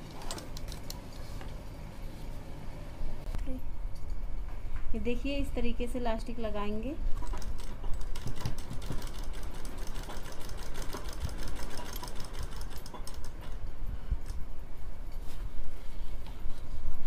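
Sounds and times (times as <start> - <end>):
sewing machine stitching: 7.2 - 13.4.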